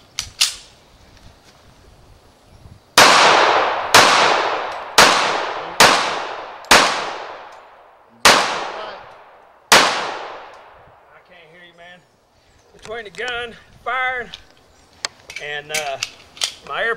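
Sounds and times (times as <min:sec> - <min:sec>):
pistol shots with echo: 0:03.0 - 0:10.9.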